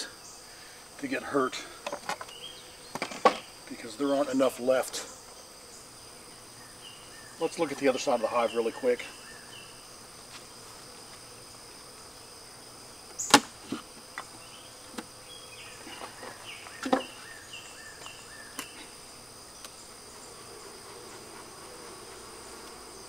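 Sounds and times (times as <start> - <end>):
knocks of wooden beehive parts: 1.8 - 3.5, 13.1 - 15.2, 15.9 - 17.2
high-pitched insect drone: 10.7 - 23.0.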